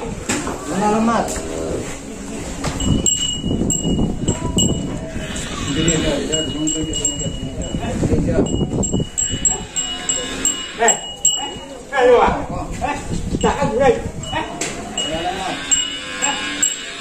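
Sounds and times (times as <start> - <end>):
high chime-like ringing: 2.8 - 5.0, 5.6 - 11.8, 14.2 - 17.0.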